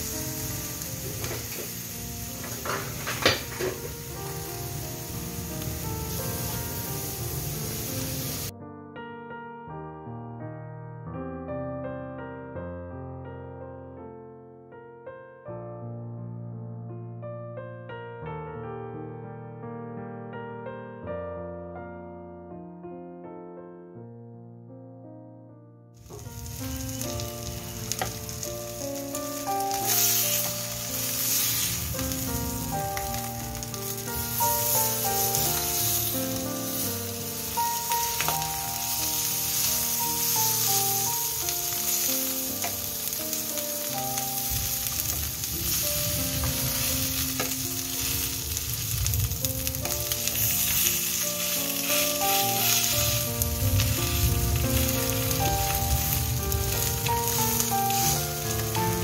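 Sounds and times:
fish sizzling in oil: 0:00.0 - 0:08.5, 0:26.0 - 0:59.0
instrumental melody: 0:00.0 - 0:59.0.

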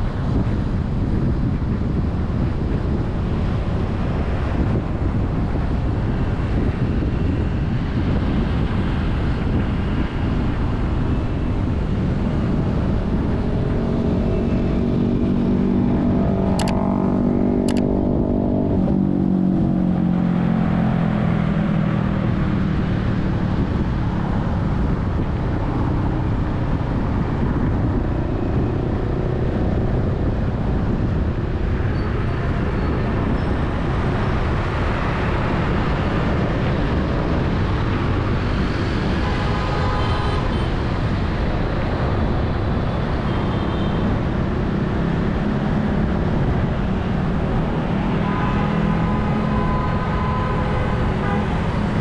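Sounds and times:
road and traffic noise: 0:00.0 - 0:52.0
passing vehicle engine: 0:11.9 - 0:25.2, 0:44.0 - 0:52.0
sharp clicks: 0:16.5 - 0:16.8, 0:17.6 - 0:17.9.

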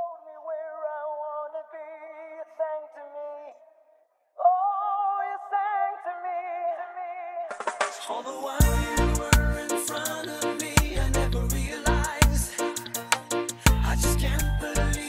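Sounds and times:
drum hits: 0:07.5 - 0:09.6, 0:10.8 - 0:11.0
person singing solo with vibrato: 0:08.2 - 0:15.0.

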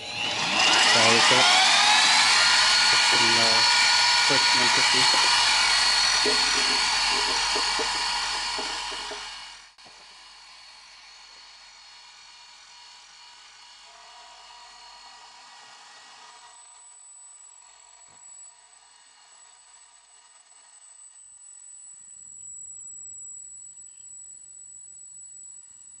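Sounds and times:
high thin tone: 0:00.0 - 0:09.5
milling machine spindle whine: 0:00.0 - 0:21.2.

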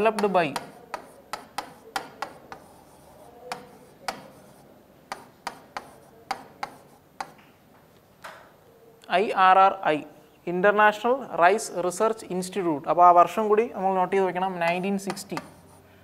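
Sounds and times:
marker writing on whiteboard: 0:00.0 - 0:08.2, 0:14.5 - 0:16.0.

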